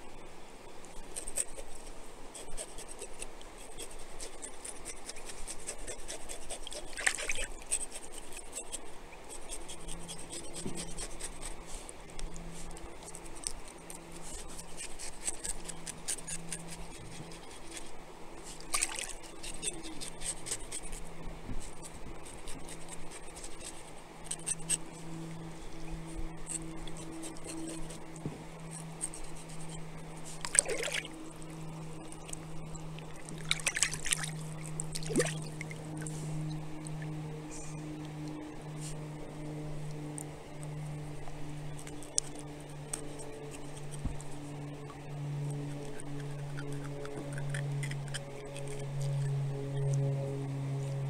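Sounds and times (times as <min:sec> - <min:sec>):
water trickling over rocks: 0:12.2 - 0:20.8, 0:30.4 - 0:36.1
water splashes: 0:18.7 - 0:19.2, 0:30.4 - 0:31.2, 0:33.0 - 0:36.1.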